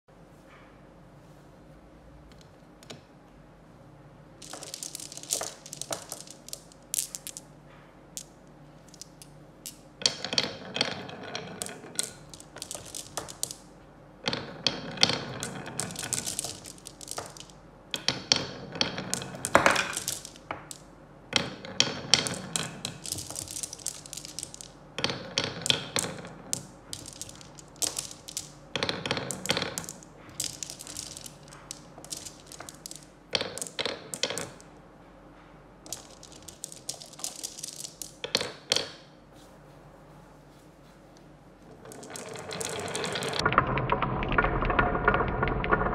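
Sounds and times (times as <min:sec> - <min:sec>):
marbles rolling on wooden track: 0:04.4 - 0:07.5, 0:08.9 - 0:20.8, 0:21.4 - 0:34.7, 0:35.8 - 0:39.0, 0:41.7 - 0:45.9.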